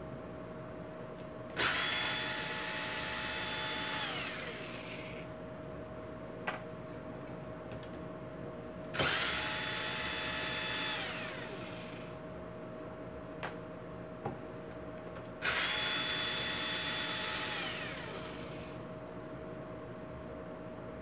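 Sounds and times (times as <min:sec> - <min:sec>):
electric screwdriver motor whine: 0:01.6 - 0:05.2, 0:09.0 - 0:12.1, 0:15.4 - 0:18.8.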